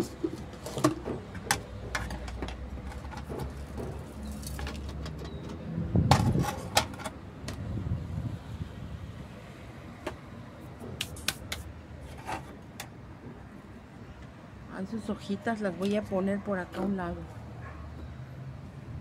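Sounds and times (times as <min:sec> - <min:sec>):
ceramic pots clicking and knocking: 0:00.0 - 0:07.2.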